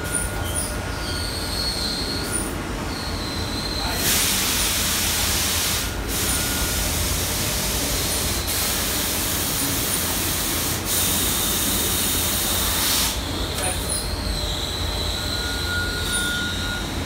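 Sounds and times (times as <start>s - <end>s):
loud hissing machine noise: 2.9s - 16.1s.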